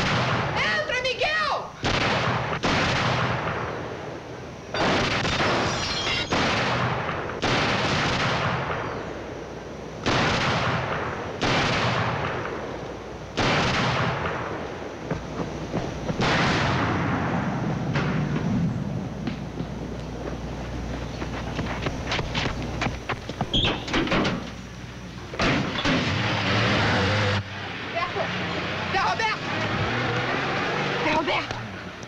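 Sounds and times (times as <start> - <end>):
gunshots with echo: 1.8 - 3.8, 13.4 - 14.5.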